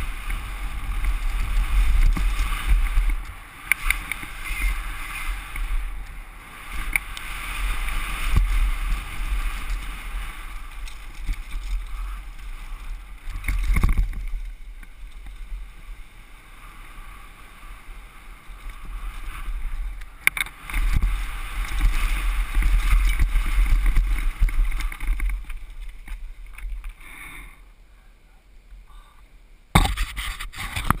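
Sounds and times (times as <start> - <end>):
wind buffeting microphone: 0.0 - 16.0, 16.9 - 26.9
bike rattle over dirt: 0.0 - 27.0.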